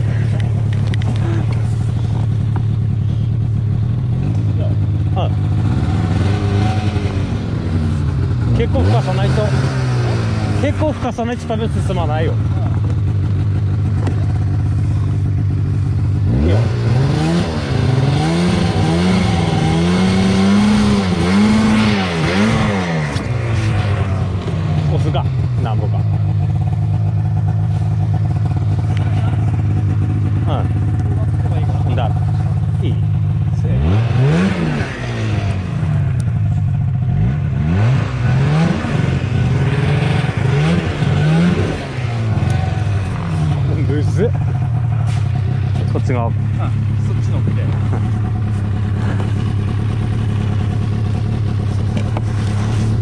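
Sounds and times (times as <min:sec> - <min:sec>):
snowmobile engine revving: 0:00.0 - 0:53.0.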